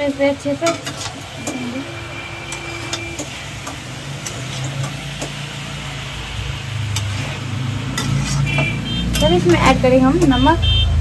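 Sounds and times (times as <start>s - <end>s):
light sizzle: 0.0s - 10.4s
metal spoon scraping pan: 0.5s - 5.4s, 6.9s - 10.4s.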